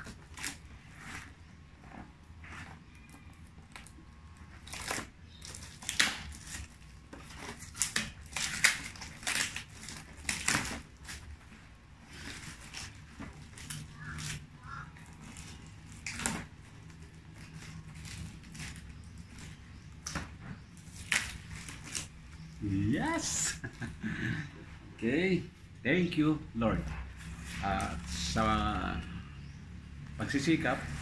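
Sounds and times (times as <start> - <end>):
cardboard box tearing: 4.5 - 14.5, 15.1 - 20.1, 20.8 - 22.5.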